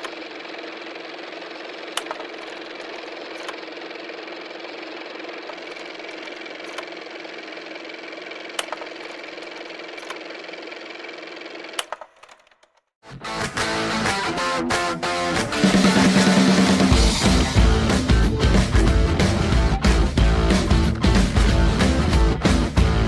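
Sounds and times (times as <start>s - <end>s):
mechanical whirring hum: 0.0s - 12.5s
sharp clicks: 1.9s - 3.6s, 8.5s - 10.2s, 11.7s - 12.8s.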